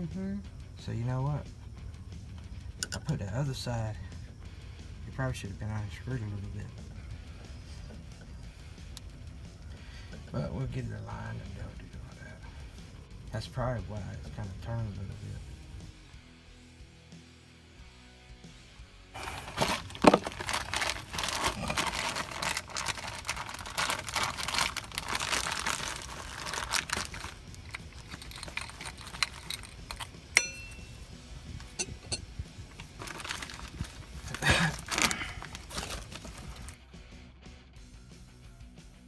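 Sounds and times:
plastic packaging crinkling: 19.2s - 30.1s, 32.7s - 36.8s.

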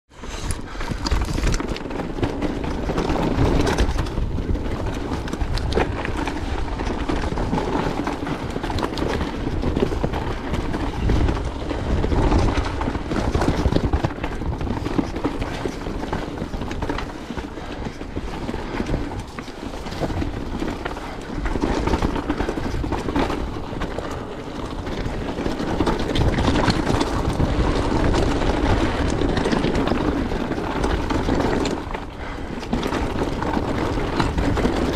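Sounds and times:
bike knocks and rattles: 0.2s - 34.9s
tyres crunching over rock and gravel: 0.4s - 34.9s.

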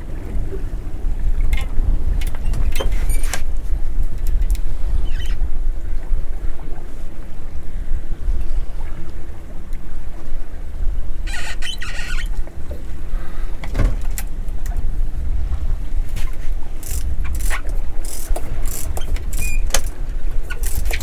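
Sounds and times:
low steady boat hum: 0.0s - 21.0s
wind buffeting microphone: 0.0s - 21.0s
brief high squeal: 11.3s - 12.3s.

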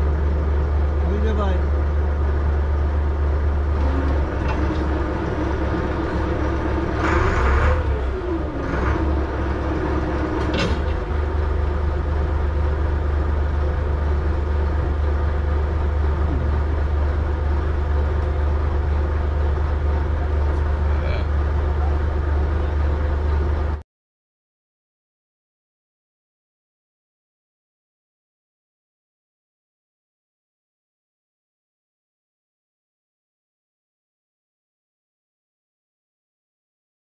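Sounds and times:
boat diesel engine droning: 0.0s - 23.8s.

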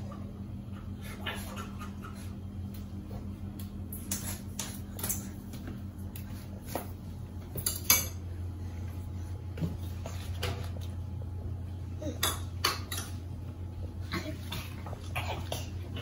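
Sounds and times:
steady low hum: 0.0s - 16.0s
dishes and cutlery clinking: 7.5s - 8.2s, 12.1s - 13.2s.

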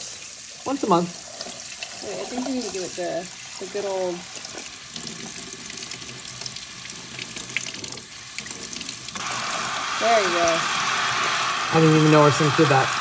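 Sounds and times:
faucet spray hissing: 0.0s - 5.9s, 9.1s - 13.0s
faucet water running into sink: 0.0s - 13.0s.

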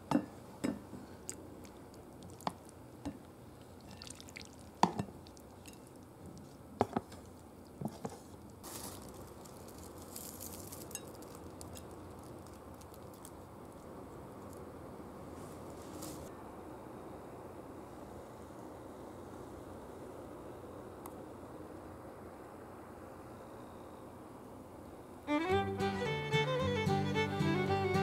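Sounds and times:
wet squishing of food: 1.0s - 14.5s.

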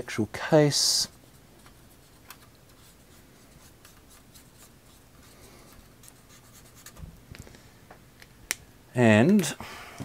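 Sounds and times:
pen tip rubbing on plastic: 1.9s - 7.0s.

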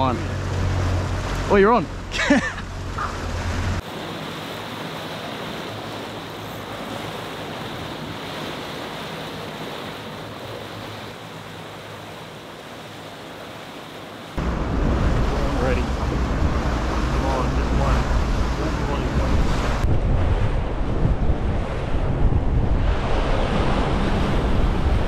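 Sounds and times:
low engine hum: 0.0s - 3.8s, 14.4s - 25.0s
rushing water of boat wake: 0.0s - 25.0s
wind on microphone: 14.4s - 25.0s.

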